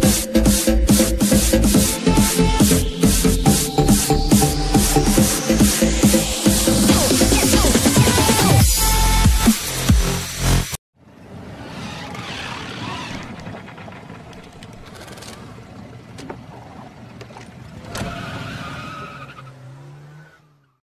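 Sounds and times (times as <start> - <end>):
loud electronic music: 0.0 - 10.8
rising motor hum: 11.0 - 18.0
cartoon vehicle driving and skidding: 11.0 - 20.8.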